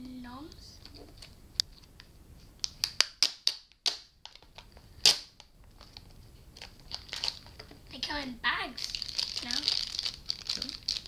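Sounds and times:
packaging clicks and snaps: 0:02.6 - 0:07.7, 0:08.8 - 0:11.0.

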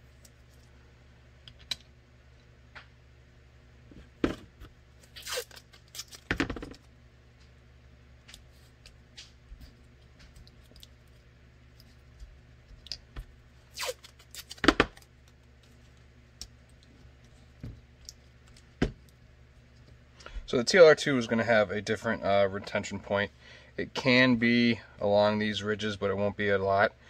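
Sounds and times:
tape ripping and crinkling: 0:05.0 - 0:06.8, 0:13.7 - 0:15.1.

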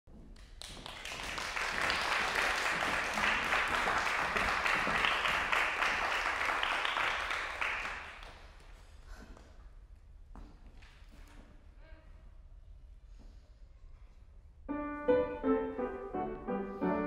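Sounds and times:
audience applauding: 0:00.4 - 0:08.5.

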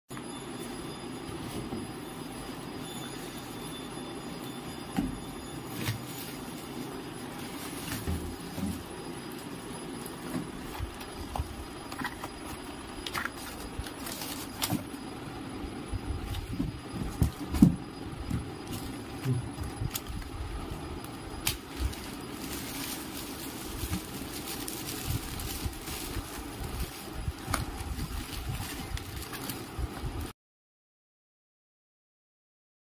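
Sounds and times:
steady low hum: 0:00.1 - 0:30.3
plastic packaging crinkling: 0:05.6 - 0:15.0, 0:21.3 - 0:30.2
knocks and thump: 0:16.5 - 0:18.5.

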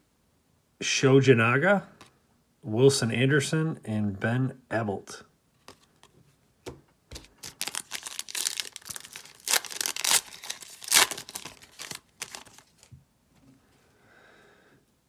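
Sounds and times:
foil wrapper tearing and crinkling: 0:07.2 - 0:12.9.

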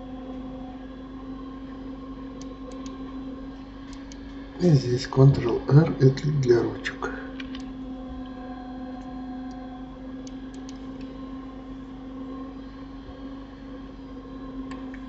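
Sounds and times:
electrical hum and hiss: 0:00.0 - 0:15.0
computer mouse clicks: 0:02.4 - 0:03.0, 0:10.2 - 0:11.1.

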